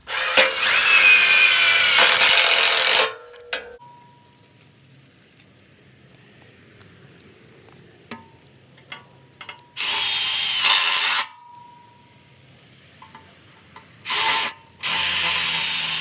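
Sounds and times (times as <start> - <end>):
impact driver driving screws: 0.1 - 3.2, 14.1 - 16.0.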